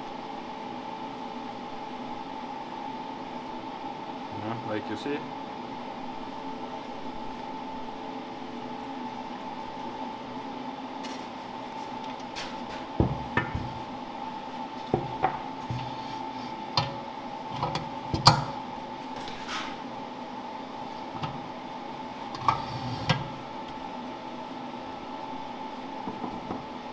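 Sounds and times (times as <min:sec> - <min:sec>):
steady machine hum: 0:00.0 - 0:26.9.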